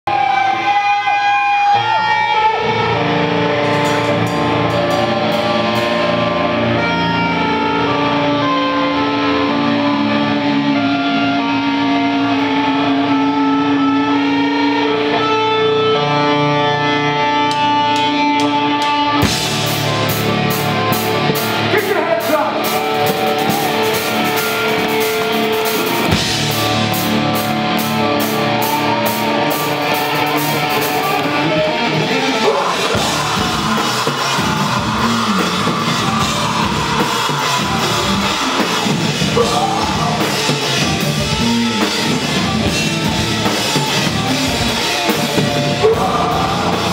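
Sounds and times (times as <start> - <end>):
live rock band playing: 0.1 - 46.9
drums and cymbals: 3.6 - 7.3, 18.8 - 46.9.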